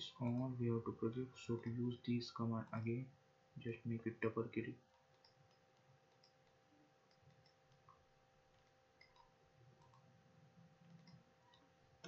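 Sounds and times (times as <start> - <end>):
computer mouse clicks: 4.9 - 10.1, 10.8 - 11.7.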